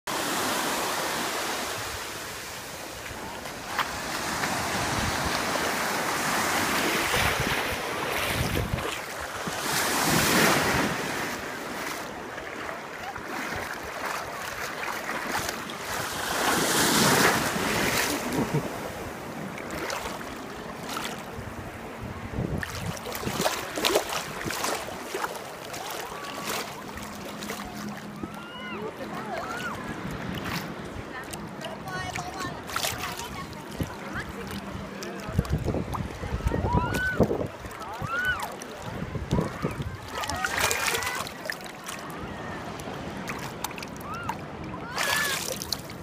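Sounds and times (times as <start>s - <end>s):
sea surf washing: 0.1s - 46.0s
wind buffeting microphone: 7.0s - 10.8s, 21.3s - 25.1s, 31.9s - 38.1s, 38.9s - 40.6s.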